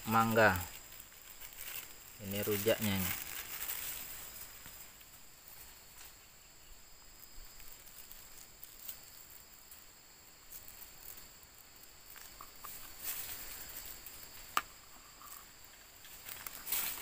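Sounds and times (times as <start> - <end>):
insects droning: 0.0 - 17.0
food wrapper crinkling: 0.8 - 4.7.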